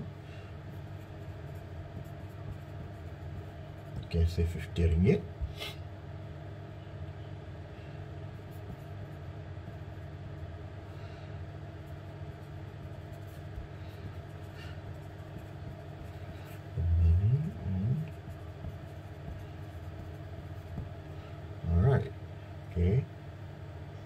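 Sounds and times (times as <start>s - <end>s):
low background hum: 0.0s - 24.0s
pencil scratching on paper: 0.7s - 4.1s, 11.9s - 21.0s
low rumble rising in pitch: 16.8s - 18.1s.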